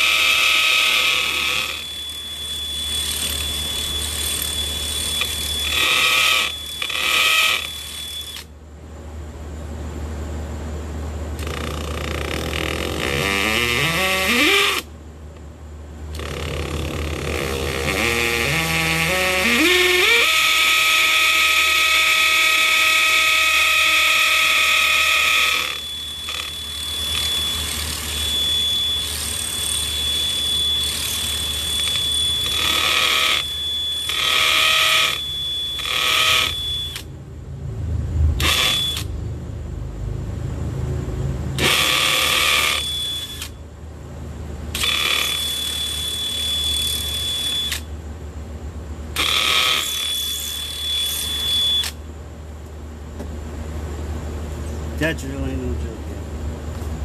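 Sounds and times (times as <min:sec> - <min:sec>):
cordless hammer drill boring: 0:00.0 - 0:08.5, 0:11.4 - 0:14.9, 0:16.2 - 0:37.1, 0:38.4 - 0:39.1, 0:41.6 - 0:43.6, 0:44.7 - 0:47.9, 0:49.2 - 0:52.0.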